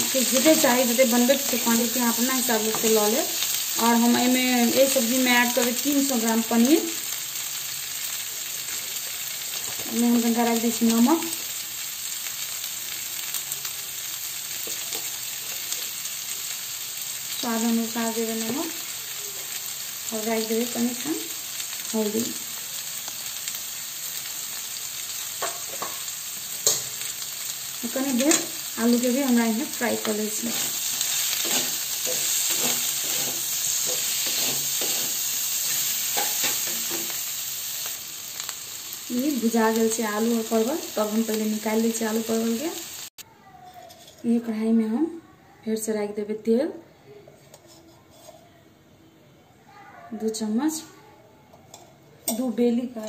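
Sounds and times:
vegetables sizzling in hot oil: 0:00.0 - 0:43.2
wooden spatula scraping pan: 0:30.4 - 0:35.3, 0:47.4 - 0:48.4.

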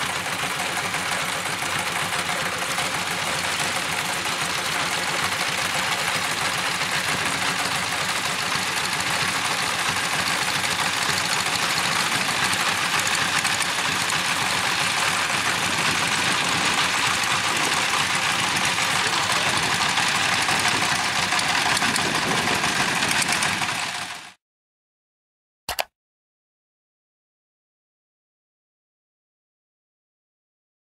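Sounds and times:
diesel engine running: 0:00.0 - 0:24.4.

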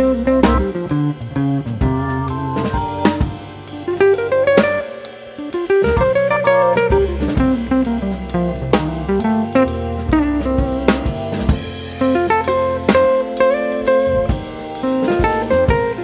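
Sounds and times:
plucked guitar melody: 0:00.0 - 0:05.0, 0:05.6 - 0:10.8
drum kit beat with cymbals: 0:00.0 - 0:16.0.

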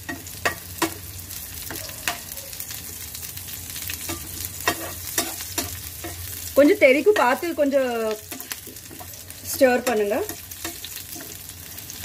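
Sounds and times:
spatula scraping and tapping pan: 0:00.0 - 0:01.0, 0:04.0 - 0:06.4, 0:07.0 - 0:12.0
food sizzling in hot oil: 0:00.0 - 0:12.0.

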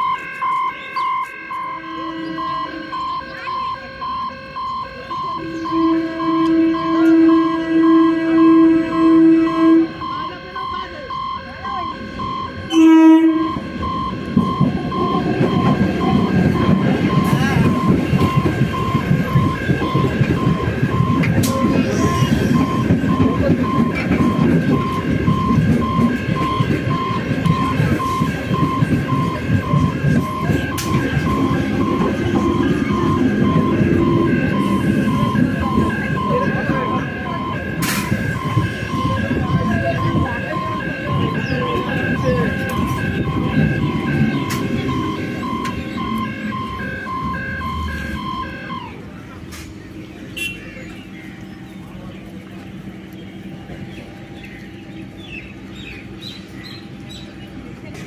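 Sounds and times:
electric train passing: 0:00.0 - 0:58.0
level crossing alarm beeping: 0:00.0 - 0:58.0.

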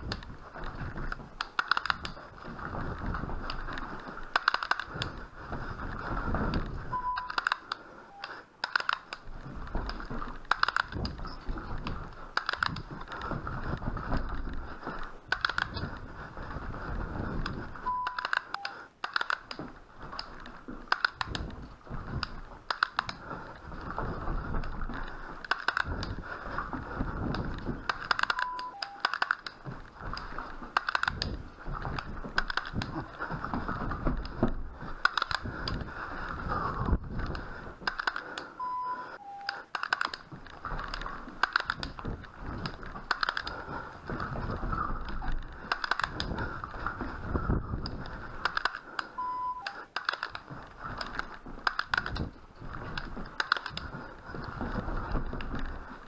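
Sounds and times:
sharp clicks and knocks: 0:00.0 - 0:38.6, 0:39.4 - 0:56.0
low thuds: 0:09.2 - 0:17.9, 0:19.6 - 0:28.2, 0:40.3 - 0:48.5.

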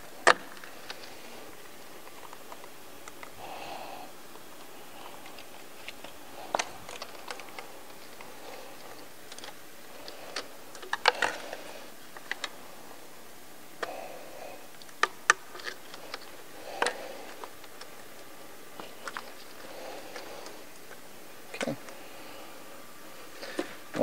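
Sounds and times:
plastic clips clicking: 0:05.1 - 0:12.6, 0:14.7 - 0:22.0.

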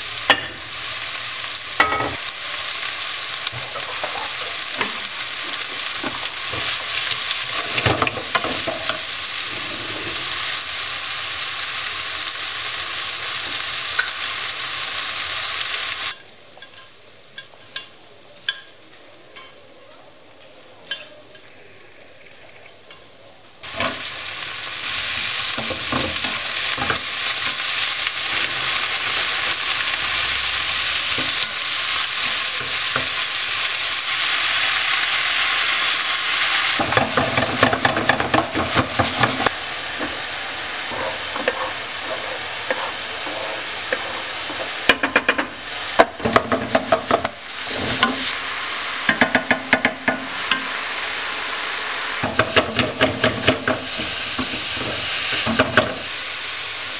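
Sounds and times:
vegetables sizzling in a wok: 0:00.0 - 0:56.9
wooden spoon stirring in a pan: 0:36.7 - 0:48.4, 0:52.2 - 0:56.1.

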